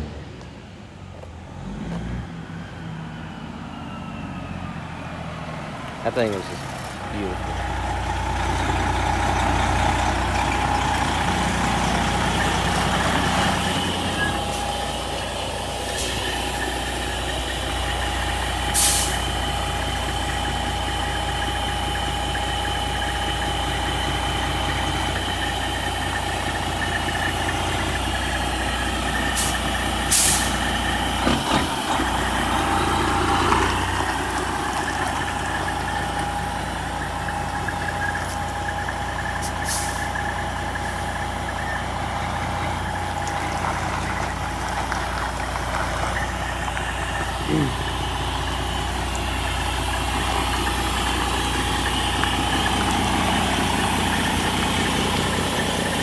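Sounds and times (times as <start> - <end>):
diesel truck engine idling: 0.0 - 56.0
air brake hisses: 18.7 - 19.3, 29.4 - 30.6, 39.4 - 40.1.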